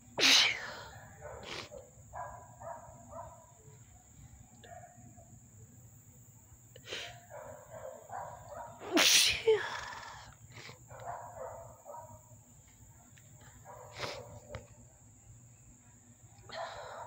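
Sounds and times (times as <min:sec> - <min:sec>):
woman sneezing: 0:00.2 - 0:00.9, 0:08.8 - 0:10.7.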